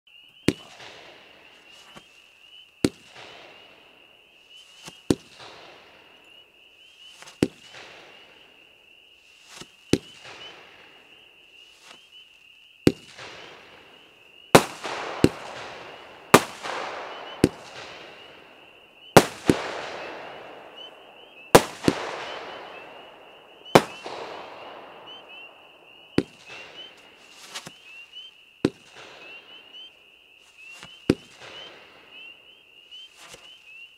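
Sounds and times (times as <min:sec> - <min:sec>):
fireworks launch reports: 0:00.4 - 0:02.1, 0:12.9 - 0:28.0
hissing fizzing firework trails: 0:12.9 - 0:25.6.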